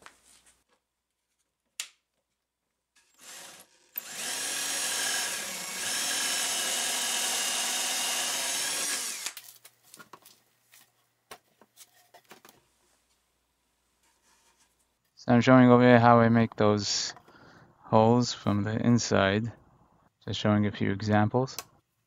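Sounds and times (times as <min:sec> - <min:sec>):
cordless drill boring into wood: 0:03.0 - 0:09.4.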